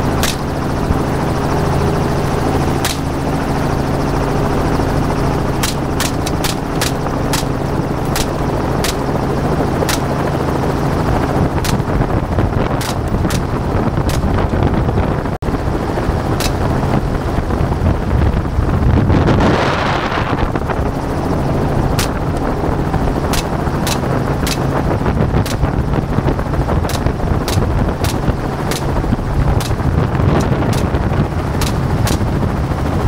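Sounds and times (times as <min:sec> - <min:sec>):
helicopter running: 0:00.0 - 0:33.0
rifle shots: 0:00.2 - 0:00.6, 0:02.8 - 0:03.1, 0:05.6 - 0:09.1, 0:22.0 - 0:22.2, 0:31.6 - 0:32.3.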